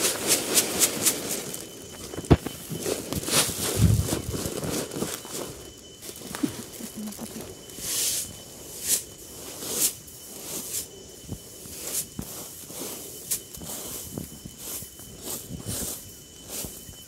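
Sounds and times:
rice grain swept on a bamboo mat: 0.0 - 17.0.

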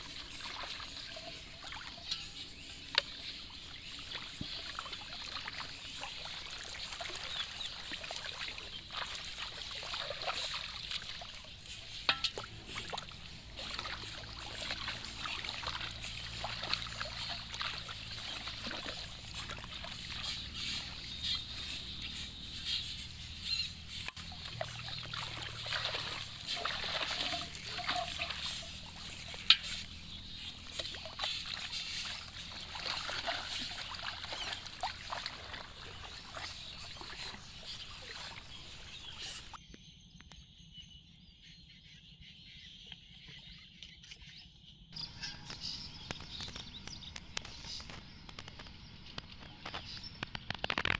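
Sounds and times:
pond water sloshing and splashing: 0.0 - 39.6, 45.0 - 50.9.

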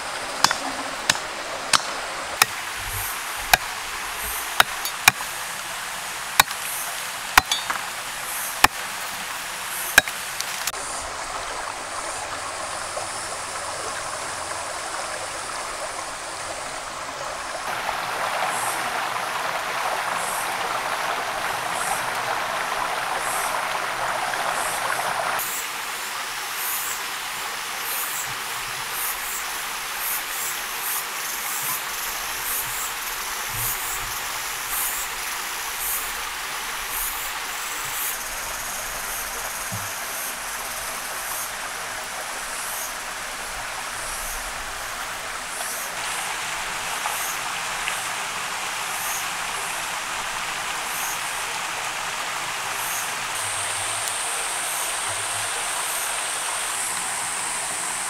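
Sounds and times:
forest stream rushing: 0.0 - 58.0
machete chopping bamboo: 0.4 - 2.6, 4.6 - 5.3, 6.4 - 6.6, 7.4 - 7.9, 10.0 - 10.6.

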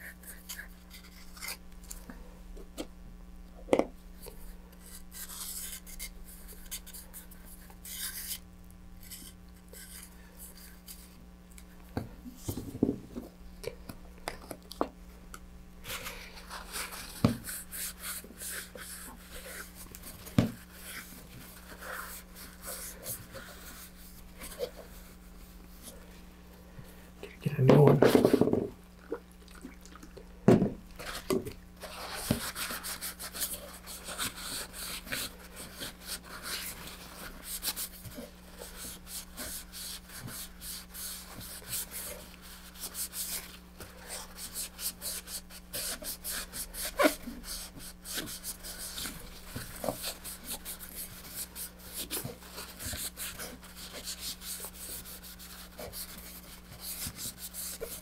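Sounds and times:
paper towel rubbing: 31.8 - 58.0.

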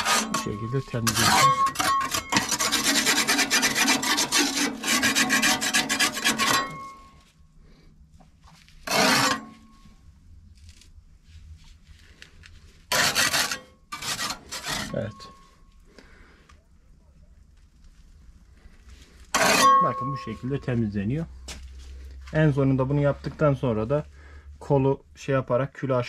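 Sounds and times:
scraper rasping inside boiler: 0.0 - 7.2, 8.8 - 9.8, 12.8 - 15.5, 19.3 - 20.2.

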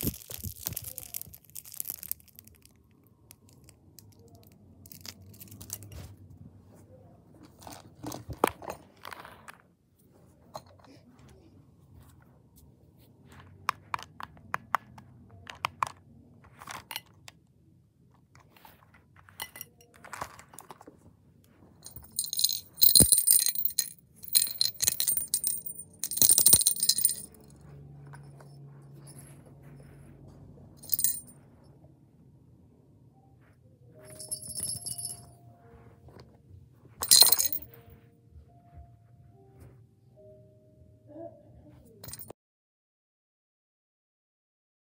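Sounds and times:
cat toy jingling rattle: 21.8 - 30.0, 30.8 - 31.3, 34.1 - 35.3, 37.0 - 37.7.

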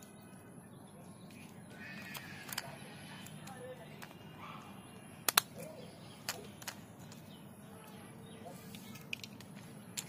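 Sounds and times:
plastic toy parts clicking: 1.3 - 4.2, 5.2 - 7.3, 8.7 - 10.0.

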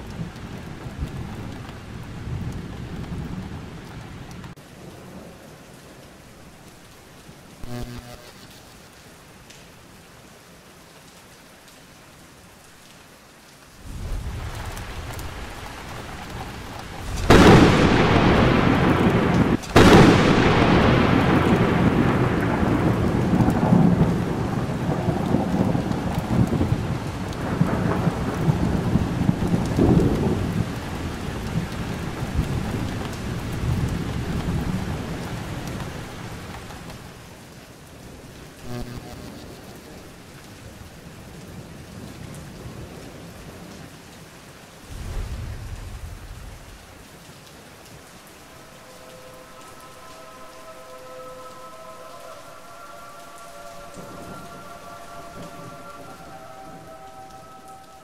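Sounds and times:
faint steady rain: 0.0 - 58.0
sharp thunderclaps: 13.8 - 35.3, 44.9 - 46.7
rolling thunder: 13.8 - 36.7, 44.9 - 46.9, 48.0 - 58.0.

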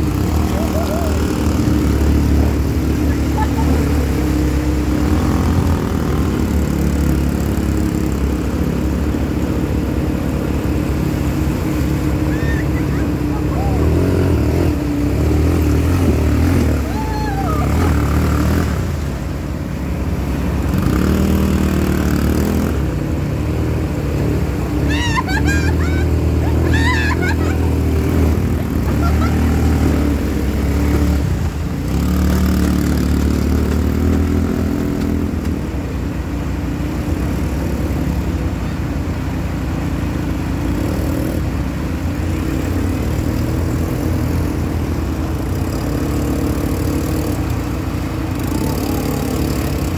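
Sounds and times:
quad bike engines revving: 0.0 - 49.9
water rushing and splashing: 0.0 - 49.9
high wavering calls: 12.0 - 14.4, 24.8 - 28.0.

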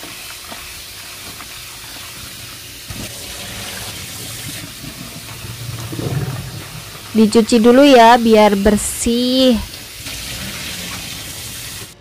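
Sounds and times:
tap water splashing into sink: 2.9 - 7.1.

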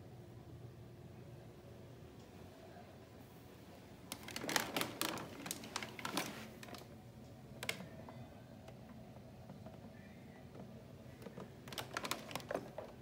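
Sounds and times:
plastic clicks and rattles: 7.6 - 7.9, 10.6 - 13.0.

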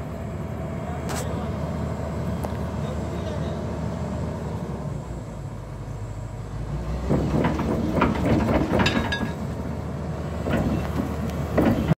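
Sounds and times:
diesel engine rumbling: 0.0 - 11.9
steel tracks clanking and creaking: 6.6 - 11.9.

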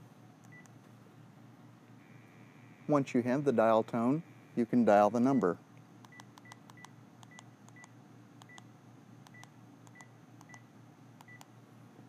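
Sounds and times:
keypad clicks: 6.0 - 8.6, 9.2 - 10.6, 11.2 - 11.5.

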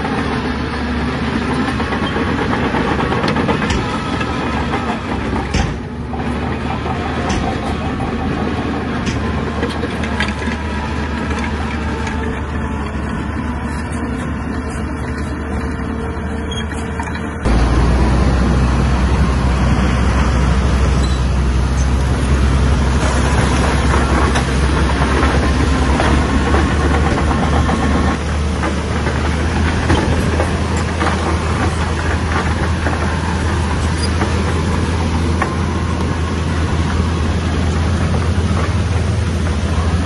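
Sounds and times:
bulldozer diesel engine drone: 0.0 - 40.0
machine clanks: 1.6 - 12.3.

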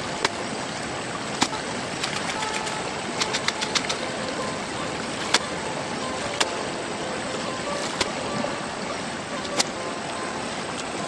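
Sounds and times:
river water rushing: 0.0 - 11.0
clicks and splashes in water: 1.2 - 4.2, 5.1 - 5.6, 6.2 - 6.7, 7.7 - 8.2, 9.4 - 9.8.

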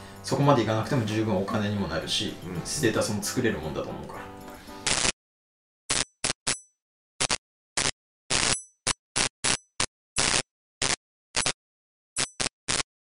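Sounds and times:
buzzing electric static bursts: 4.8 - 5.2, 5.9 - 6.5, 7.2 - 11.6, 12.2 - 12.9.

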